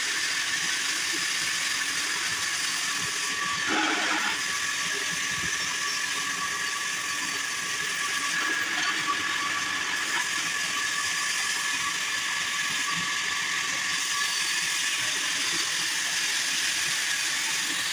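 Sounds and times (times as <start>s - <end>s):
band sawmill running: 0.0s - 17.9s.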